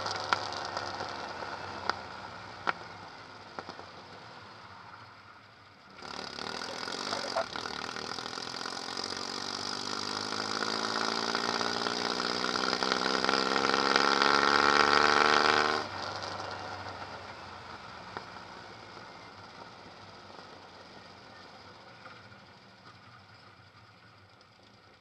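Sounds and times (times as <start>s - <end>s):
car exhaust under throttle: 0.0s - 4.7s, 5.9s - 21.1s.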